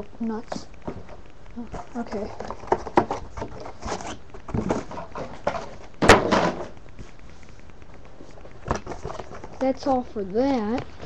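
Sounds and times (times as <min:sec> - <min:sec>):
faint knocks and rustles: 0:00.5 - 0:11.0.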